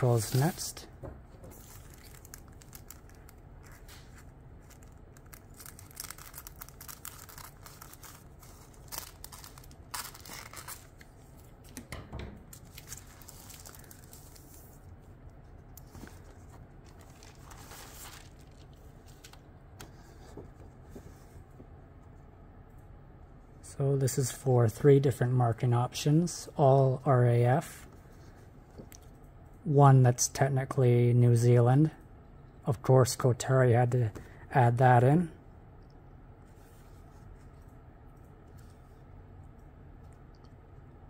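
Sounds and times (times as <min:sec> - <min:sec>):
cellophane bag crinkling: 0:01.6 - 0:11.1, 0:12.6 - 0:14.8, 0:15.8 - 0:19.4.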